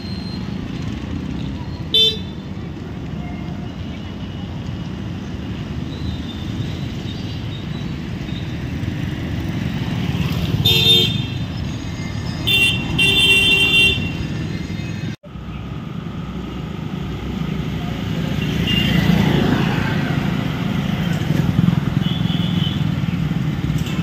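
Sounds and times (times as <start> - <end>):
road traffic rumbling: 0.0 - 24.0
vehicle horn honking: 12.5 - 14.2.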